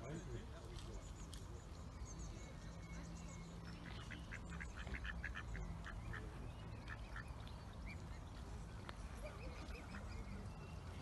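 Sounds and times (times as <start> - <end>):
ducks calling: 3.6 - 8.5.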